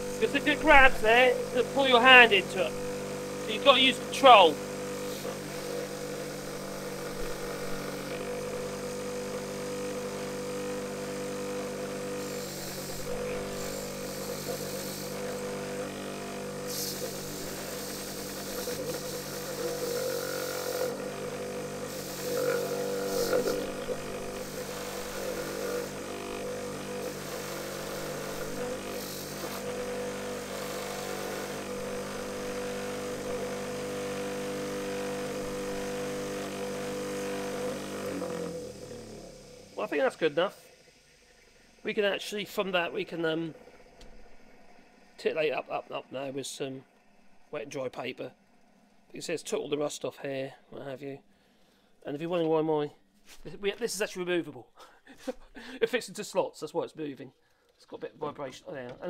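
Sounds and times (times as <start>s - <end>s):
wire wheel hissing on blade: 0.0s - 40.9s
bench grinder motor humming: 0.0s - 41.8s.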